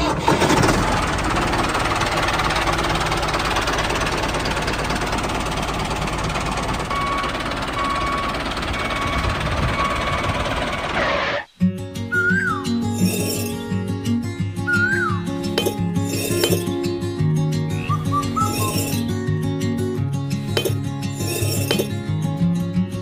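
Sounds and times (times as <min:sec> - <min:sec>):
machine engine running with rattle: 0:00.0 - 0:11.4, 0:18.3 - 0:19.1.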